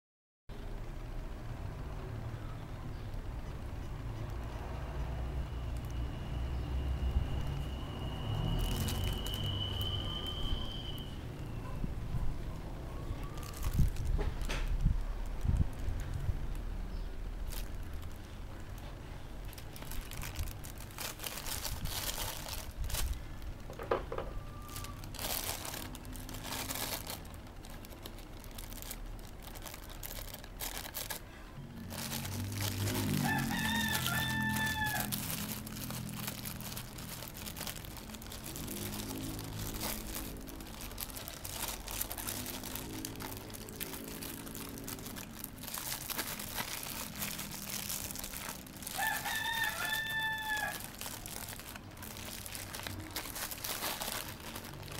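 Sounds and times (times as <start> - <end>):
plastic pouch crinkling and ripping: 7.0 - 11.1, 12.6 - 54.9
rooster crowing: 24.0 - 26.5, 32.8 - 36.1, 48.6 - 51.4.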